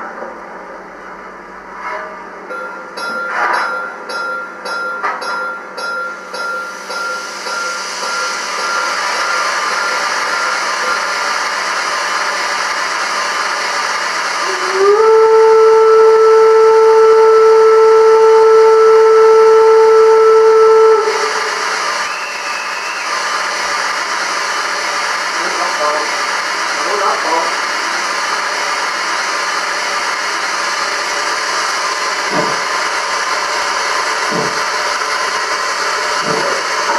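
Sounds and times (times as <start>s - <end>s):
steam hissing: 6.2s - 36.9s
steam whistle: 7.0s - 11.3s, 14.2s - 23.5s.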